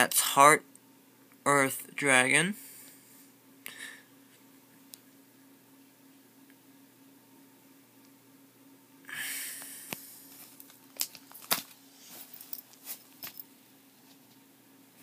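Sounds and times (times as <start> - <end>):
plastic sleeves rustling: 10.2 - 13.4.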